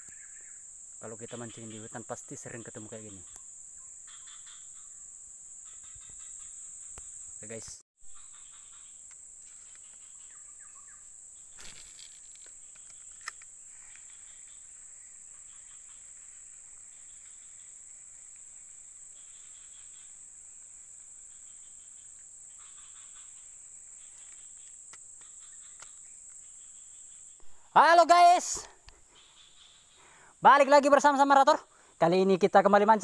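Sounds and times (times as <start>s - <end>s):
insects buzzing high-pitched: 0.0s - 33.0s
soft trilling chirps: 19.1s - 30.3s.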